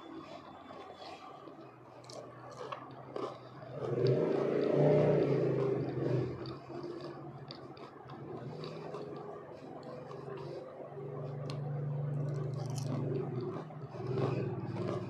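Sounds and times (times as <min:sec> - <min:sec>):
chewing crispy food: 0:00.0 - 0:15.0
vehicle engine passing by: 0:03.6 - 0:15.0.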